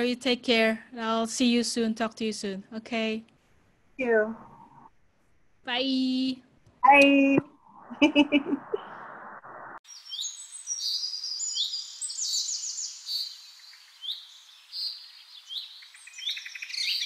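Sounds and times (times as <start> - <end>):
birds chirping and trilling: 9.9 - 17.0.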